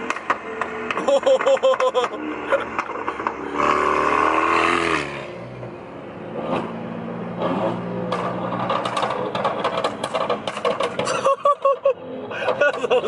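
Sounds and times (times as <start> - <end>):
car accelerating hard: 0.6 - 5.5
sharp exhaust pops: 7.4 - 11.8.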